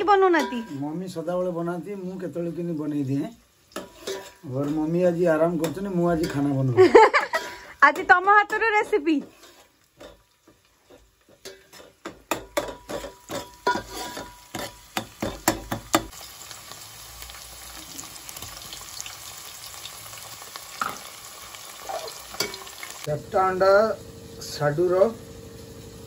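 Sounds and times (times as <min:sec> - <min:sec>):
onions sizzling in oil: 0:00.0 - 0:26.0
metal ladle scraping a pot: 0:03.8 - 0:06.5, 0:07.3 - 0:10.2, 0:10.9 - 0:14.8.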